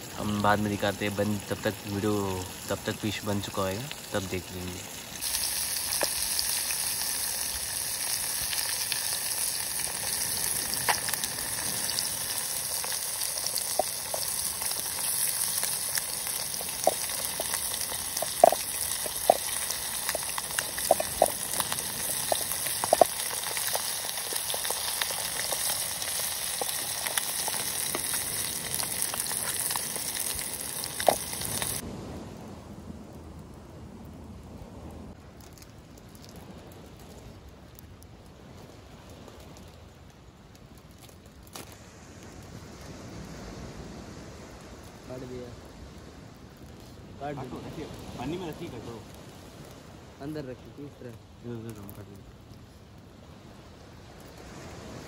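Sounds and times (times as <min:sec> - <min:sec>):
fish frying in oil: 0:00.0 - 0:31.8
spitting oil pops and crackles: 0:01.6 - 0:31.8.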